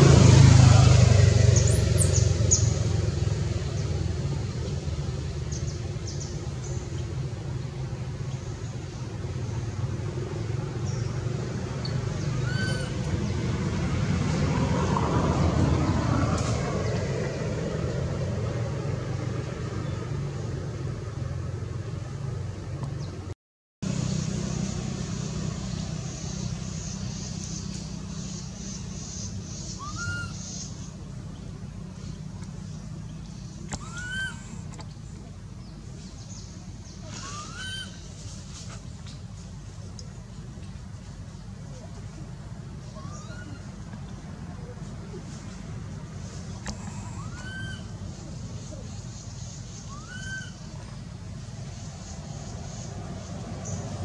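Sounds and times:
low outdoor rumble: 0.0s - 54.0s
high chirping calls: 25.6s - 31.0s, 46.8s - 51.0s.

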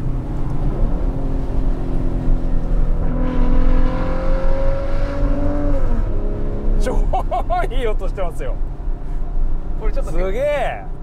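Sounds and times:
car engine accelerating: 0.0s - 7.5s.

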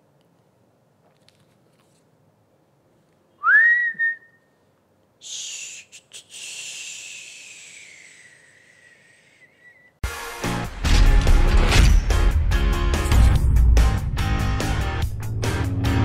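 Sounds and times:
man whistling: 3.4s - 4.6s, 5.2s - 10.0s
breathy whistled hiss: 5.2s - 10.0s.

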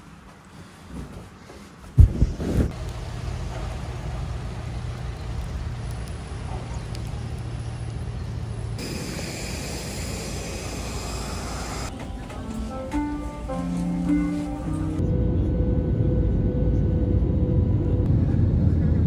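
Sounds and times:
low vehicle rumble: 2.2s - 19.0s
airliner hiss and high whine: 8.8s - 15.2s.

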